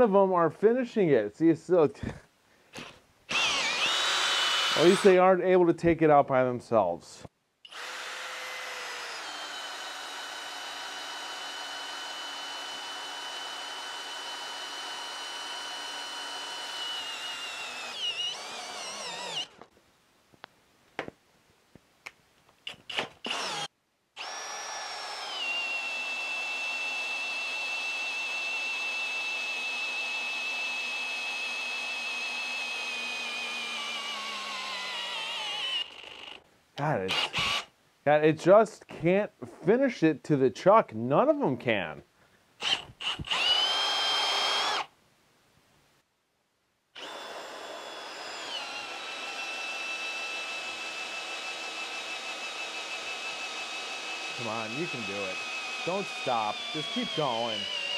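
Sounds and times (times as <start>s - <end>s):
drill clicks: 2.8s - 5.1s, 7.7s - 19.7s, 22.5s - 36.4s, 37.1s - 37.7s, 42.6s - 44.9s, 47.0s - 57.9s
cordless drill whining: 2.8s - 5.2s, 7.7s - 19.7s, 22.6s - 36.4s, 37.1s - 37.7s, 42.6s - 44.9s, 47.0s - 57.9s.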